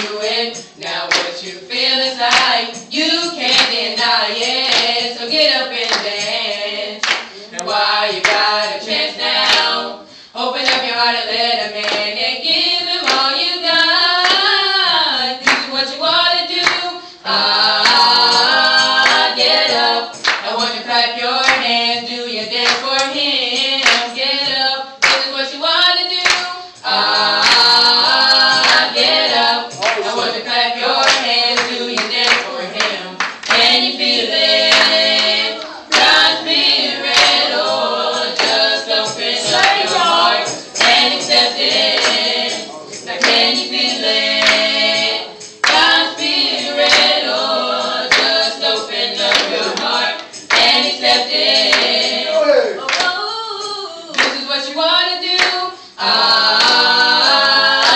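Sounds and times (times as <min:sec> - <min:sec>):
hand claps: 0:00.0 - 0:01.6, 0:02.2 - 0:05.1, 0:05.8 - 0:06.4, 0:07.0 - 0:08.7, 0:09.3 - 0:09.8, 0:10.6 - 0:10.9, 0:11.8 - 0:12.2, 0:13.0 - 0:13.3, 0:14.2 - 0:14.6, 0:15.4 - 0:15.8, 0:16.6 - 0:20.6, 0:21.4 - 0:25.3, 0:26.2 - 0:52.2, 0:52.9 - 0:53.2, 0:54.1 - 0:54.5, 0:55.3 - 0:57.9
group singing: 0:00.0 - 0:57.9.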